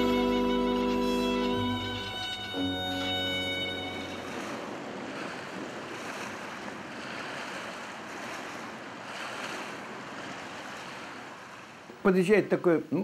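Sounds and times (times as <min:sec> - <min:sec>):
music cue: 0:00.0 - 0:04.8
river water splashing: 0:00.0 - 0:13.0
wind: 0:00.0 - 0:13.0.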